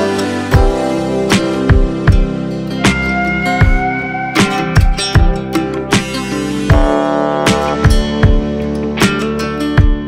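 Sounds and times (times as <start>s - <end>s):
guitar: 0.0s - 10.0s
steady drum beat: 1.4s - 8.6s.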